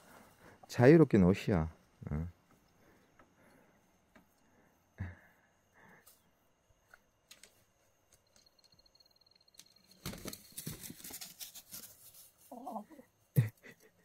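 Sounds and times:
rustling and scuffling: 9.8s - 12.9s.

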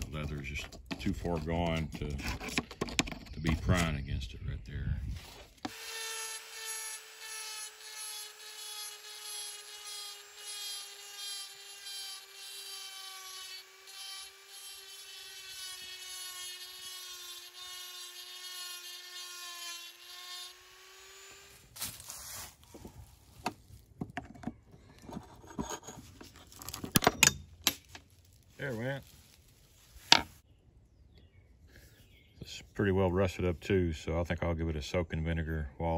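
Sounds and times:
clicks and scraping: 0.0s - 4.1s, 22.7s - 29.0s
rotary tool grinding metal: 5.2s - 21.7s, 25.0s - 27.5s.

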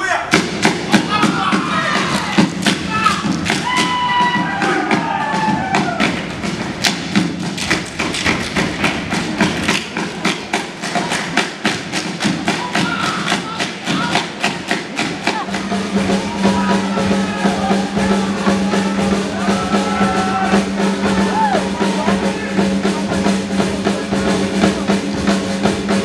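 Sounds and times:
people shouting calls: 0.0s - 6.1s, 12.5s - 23.4s
body slapping and clapping: 6.8s - 15.3s.

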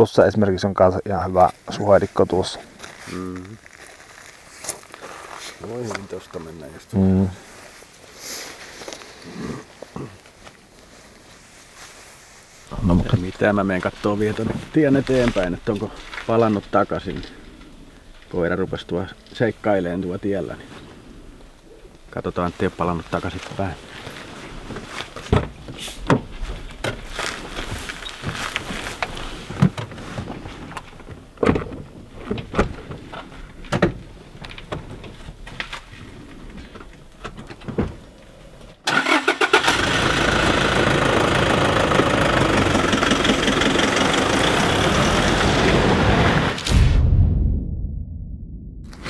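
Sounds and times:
pickup truck engine pulling away: 38.9s - 46.6s.

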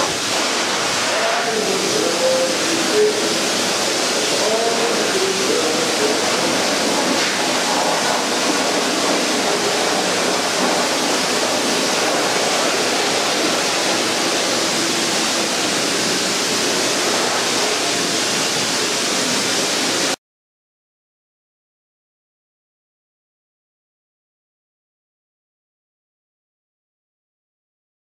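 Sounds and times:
hose nozzle spraying into tub: 0.0s - 20.0s.

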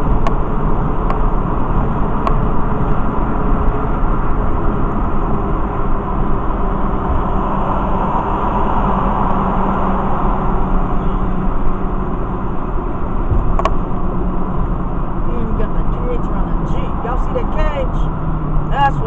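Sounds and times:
car engine hum: 0.0s - 19.0s
road and tyre noise: 0.0s - 19.0s.

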